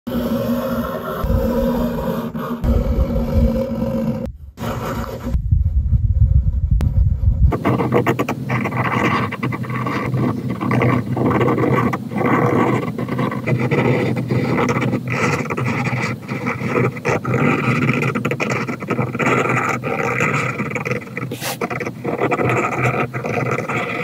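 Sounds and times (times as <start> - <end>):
pen nib scratching on paper: 7.5 - 24.0.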